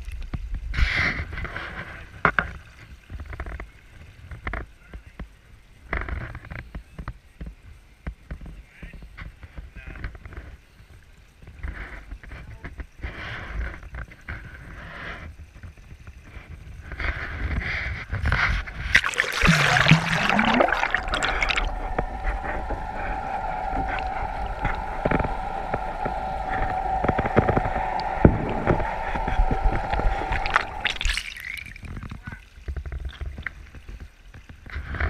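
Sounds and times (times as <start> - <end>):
splashing and bubbling water: 18.7 - 34.1
steady high tone underwater: 18.9 - 32.4.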